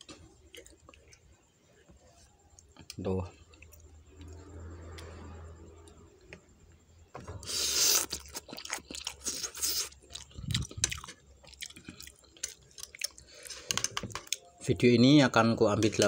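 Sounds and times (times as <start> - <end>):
person chewing noodles: 0.2 - 1.3, 7.5 - 14.6.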